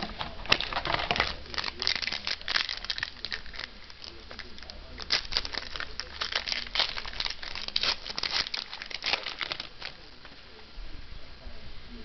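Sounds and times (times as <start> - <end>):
foil wrapper crinkling: 0.0 - 10.4.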